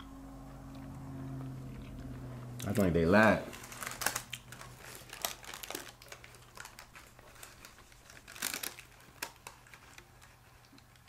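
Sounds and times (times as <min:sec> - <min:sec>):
paper wrapper crinkling: 0:02.7 - 0:11.0.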